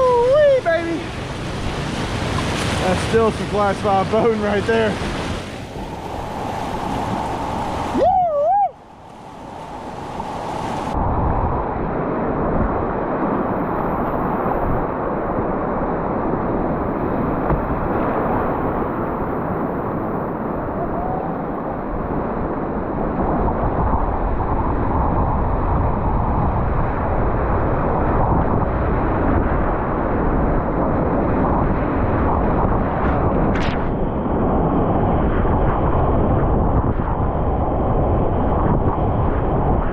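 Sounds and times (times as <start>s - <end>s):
whitewater rushing: 0.0s - 11.0s
wavering whistle-like tone: 20.7s - 21.4s.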